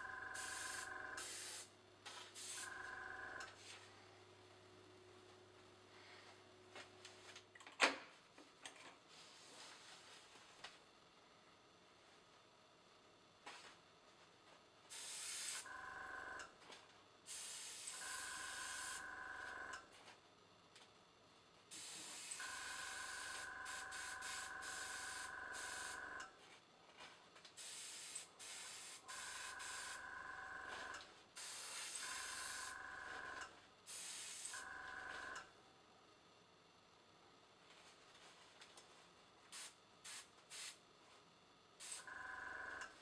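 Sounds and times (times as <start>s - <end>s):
compressor motor humming and whining: 0.0s - 7.4s, 17.7s - 20.0s, 21.7s - 27.1s, 28.3s - 35.7s
airbrush hissing: 0.4s - 1.7s, 14.9s - 15.7s, 23.0s - 26.0s, 27.6s - 30.0s, 31.4s - 32.8s.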